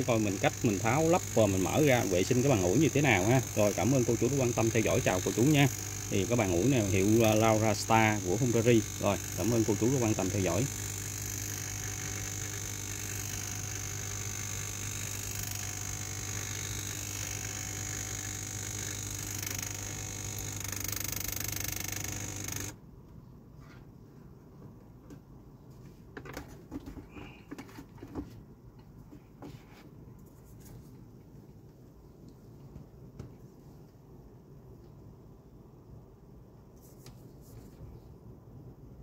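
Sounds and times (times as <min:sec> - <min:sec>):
low electric buzz: 0:00.0 - 0:22.8.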